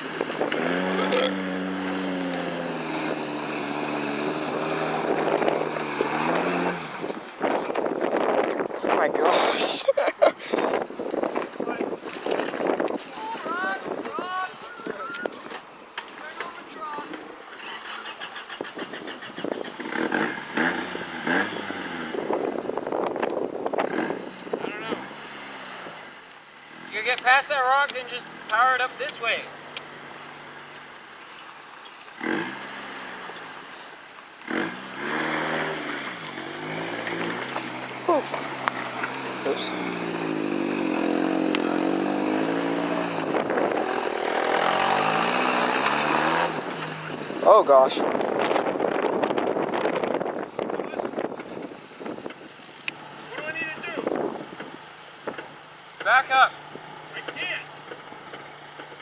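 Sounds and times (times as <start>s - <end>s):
engine revving: 0.0s - 7.2s, 17.5s - 22.6s, 23.8s - 30.8s, 32.2s - 33.7s, 34.4s - 49.9s, 52.8s - 59.0s
rocks crunching under tyres: 0.0s - 8.5s, 10.9s - 13.6s, 35.5s - 47.4s.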